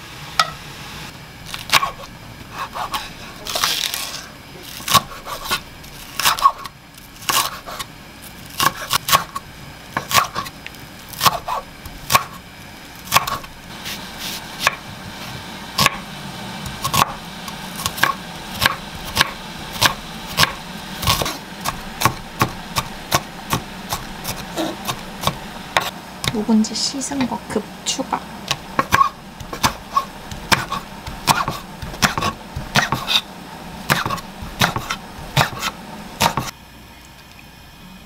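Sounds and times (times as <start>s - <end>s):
knife chopping on wooden board: 1.6s - 3.7s, 4.8s - 5.6s, 7.3s - 7.9s, 8.6s - 9.4s, 10.0s - 10.5s, 11.2s - 12.4s, 13.1s - 13.5s, 14.6s - 14.8s, 15.8s - 16.0s, 16.7s - 17.2s, 17.8s - 26.4s, 28.5s - 33.2s, 33.8s - 36.5s.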